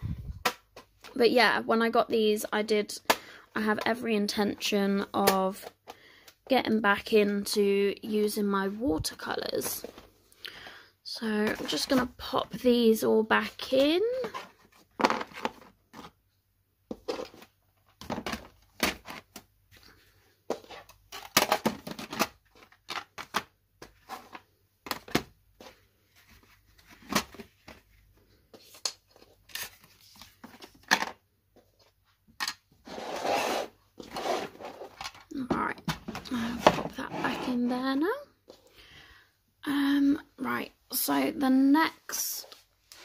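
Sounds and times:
paper rustling and sliding: 32.8 - 35.0.

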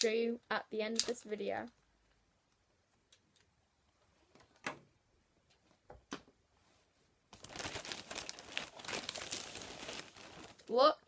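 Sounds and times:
plastic bag rustling: 7.3 - 10.8.

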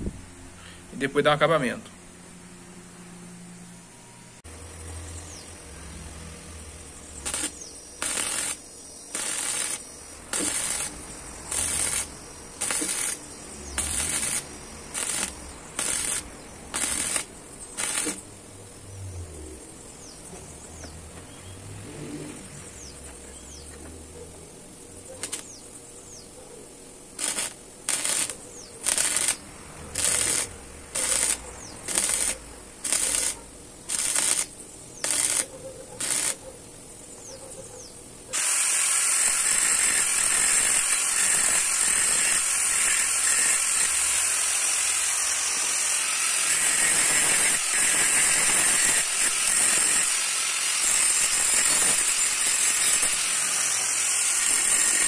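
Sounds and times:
arc welder crackling: 4.4 - 18.9, 25.0 - 25.8, 27.0 - 36.5, 38.3 - 55.0
angle grinder hissing: 4.6 - 20.2, 25.2 - 25.6, 27.1 - 36.4, 38.3 - 55.0.

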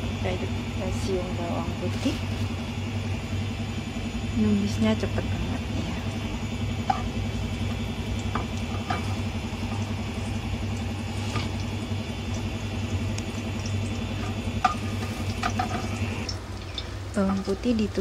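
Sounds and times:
low pulsing mechanical hum: 0.0 - 18.0
garlic sizzling in oil: 5.0 - 18.0.

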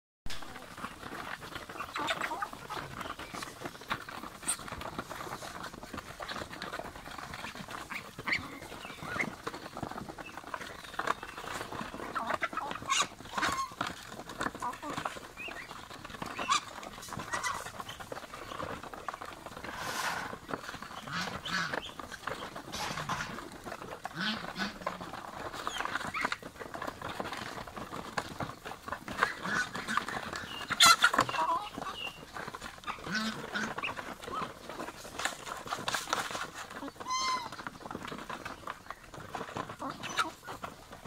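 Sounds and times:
birds pecking grain: 0.3 - 41.0
chickens clucking: 0.3 - 41.0.

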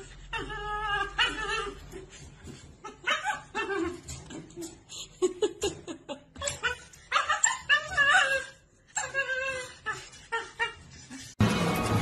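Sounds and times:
dog yipping and barking: 0.0 - 4.5, 6.4 - 11.2
dog whining: 0.0 - 4.8, 6.3 - 11.4.

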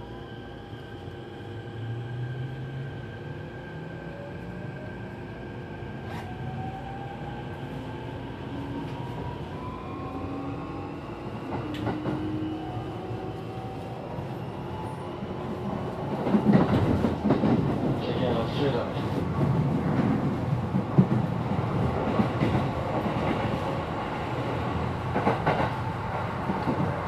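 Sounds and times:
train wheels rumbling on rails: 10.8 - 27.0.

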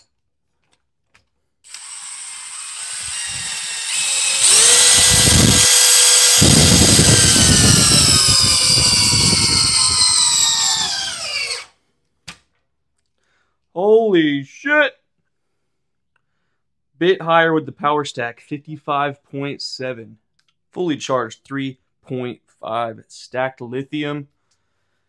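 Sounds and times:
screw threads crunching into wood: 0.6 - 12.4
cordless drill motor whining: 1.7 - 11.7.

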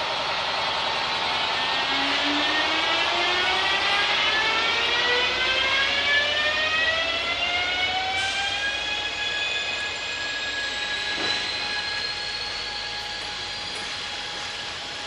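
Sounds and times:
electric locomotive motors whining: 0.0 - 15.0.

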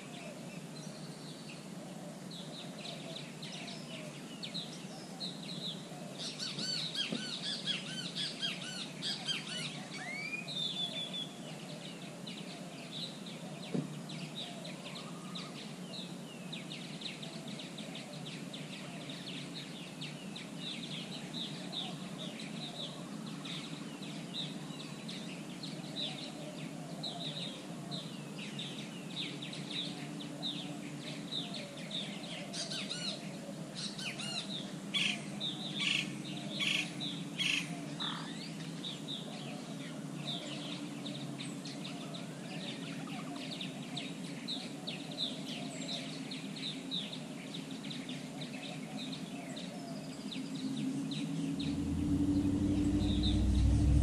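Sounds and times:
birds chirping: 46.4 - 54.0
rising whistle: 51.2 - 54.0.

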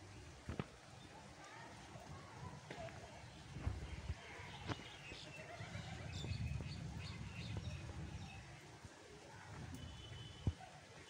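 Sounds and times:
small birds chirping: 3.1 - 8.5.

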